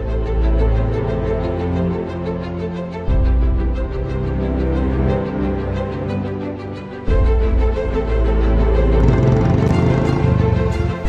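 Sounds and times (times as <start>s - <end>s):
music with held notes: 0.0s - 11.0s
deep bass: 8.6s - 11.0s.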